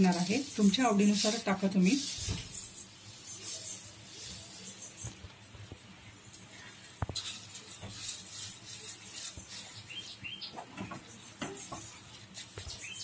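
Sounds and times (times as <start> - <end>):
spatula scraping a pan: 0.0 - 5.2, 6.3 - 13.0
spatula squeaking against pan: 7.2 - 13.0.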